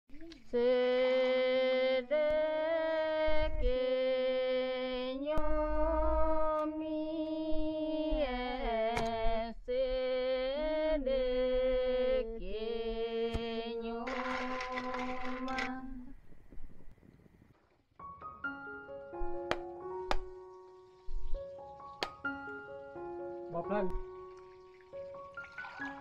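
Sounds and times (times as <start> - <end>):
slow wordless melody: 0.1 - 16.2, 18.0 - 26.0.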